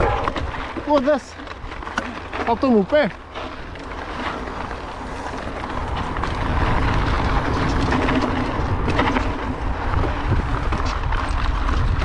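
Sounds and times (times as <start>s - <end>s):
bike rattling over bumps: 0.0s - 12.0s
bike tyres on loose dirt: 0.0s - 12.0s
wind rushing on microphone: 3.6s - 12.0s.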